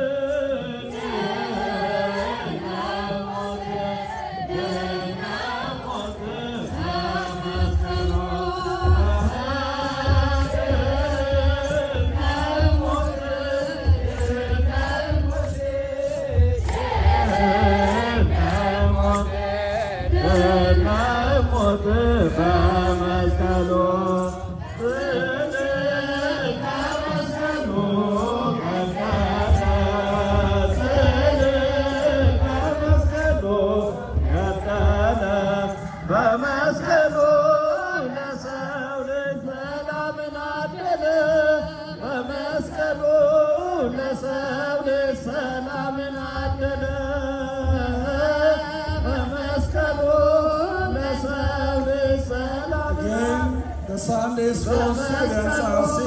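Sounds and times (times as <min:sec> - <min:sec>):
choir chanting a hymn: 0:00.0 - 0:56.0
low pulsing beat: 0:01.1 - 0:36.2.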